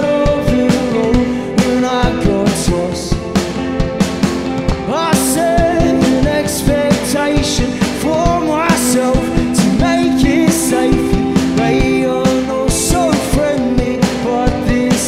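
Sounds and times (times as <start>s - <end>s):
bass guitar: 0.0s - 15.0s
drum kit with cymbal hits: 0.0s - 15.0s
electric guitars: 0.0s - 15.0s
pitch-bending melodic line: 9.2s - 13.0s.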